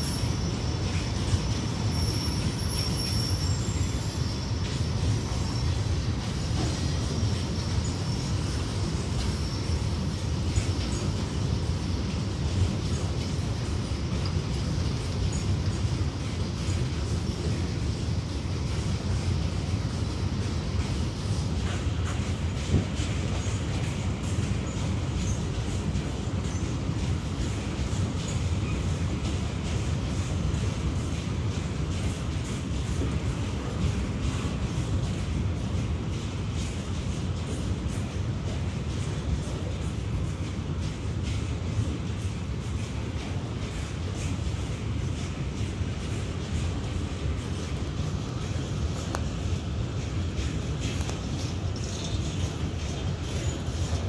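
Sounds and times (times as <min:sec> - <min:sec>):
high-pitched wheel squeal: 0:00.0 - 0:05.9
train wheels rumbling on rail: 0:00.0 - 0:54.0.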